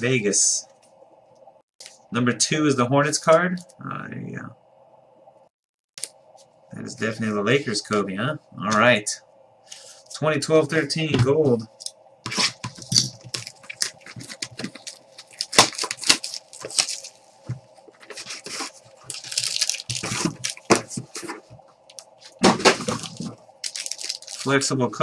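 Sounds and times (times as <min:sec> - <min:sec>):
wrapper rustling: 0:12.3 - 0:17.3, 0:17.9 - 0:21.5, 0:22.3 - 0:24.6.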